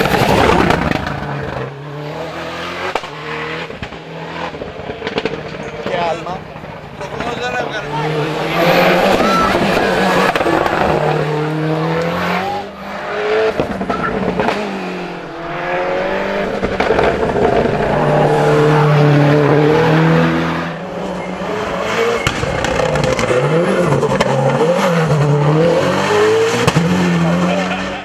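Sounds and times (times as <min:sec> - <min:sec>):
rally car engine revving: 0:00.0 - 0:28.0.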